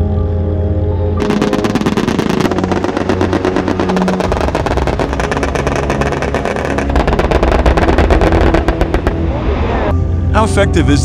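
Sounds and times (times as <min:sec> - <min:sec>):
background music: 0:00.0 - 0:11.0
rapid autocannon fire: 0:01.2 - 0:09.2.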